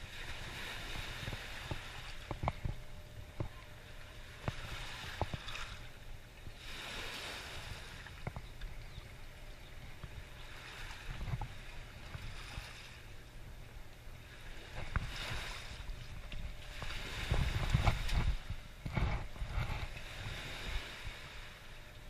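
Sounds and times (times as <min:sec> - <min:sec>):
moving water: 0:00.0 - 0:22.0
wind: 0:00.0 - 0:22.0.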